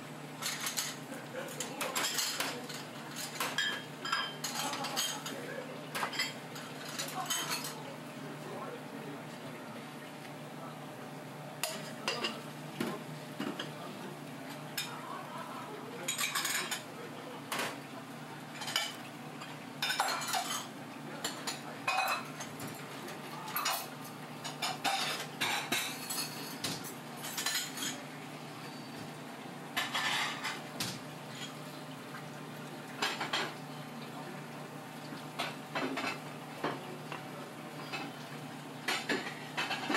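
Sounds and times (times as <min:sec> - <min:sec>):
utensils and dishes clinking: 0:00.4 - 0:07.9, 0:11.6 - 0:13.9, 0:14.5 - 0:29.1, 0:29.8 - 0:31.8, 0:32.9 - 0:34.3, 0:35.3 - 0:38.2, 0:38.8 - 0:39.9.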